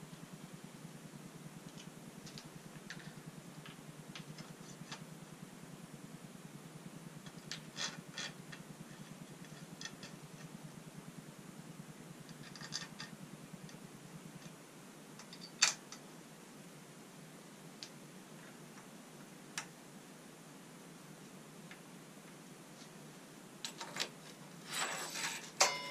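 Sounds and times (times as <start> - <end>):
tools clicking and tapping metal: 25.5 - 25.9.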